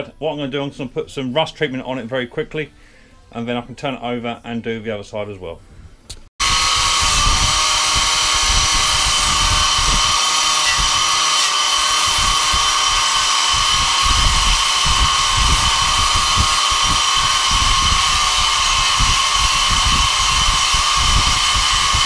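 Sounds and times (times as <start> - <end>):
angle grinder wire brush on steel: 6.4 - 22.0.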